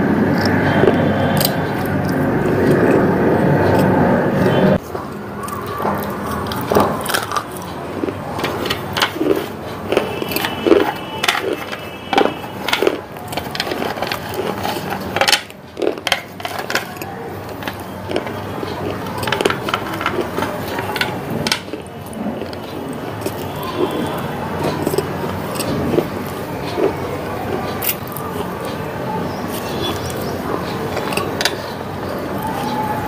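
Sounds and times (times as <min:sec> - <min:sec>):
crisp slices being chewed: 0:00.2 - 0:33.0.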